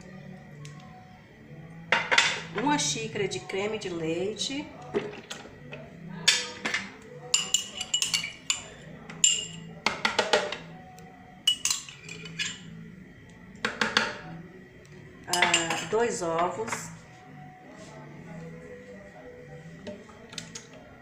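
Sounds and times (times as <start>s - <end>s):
utensils clinking against blender jar: 6.3s - 10.5s, 11.5s - 12.6s.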